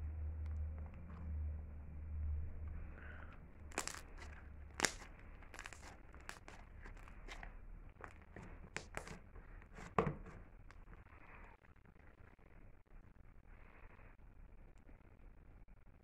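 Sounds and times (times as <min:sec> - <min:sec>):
slime crackling pops and clicks: 0:03.7 - 0:07.5.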